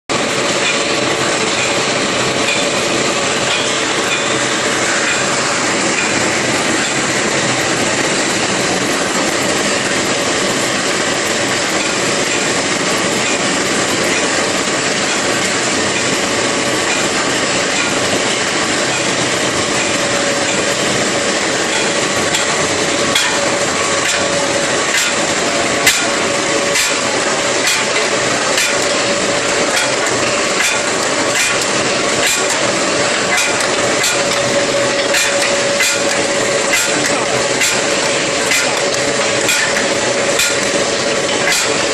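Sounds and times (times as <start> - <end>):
rolling mill industrial din: 0.1 - 41.9
sharp metallic knocks: 25.9 - 41.9.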